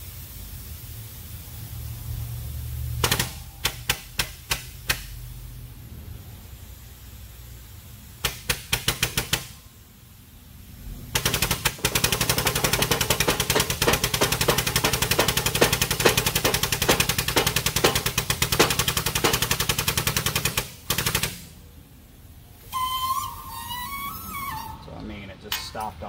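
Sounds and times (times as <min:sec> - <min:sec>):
air pump chattering: 0:08.2 - 0:09.6, 0:11.2 - 0:21.5.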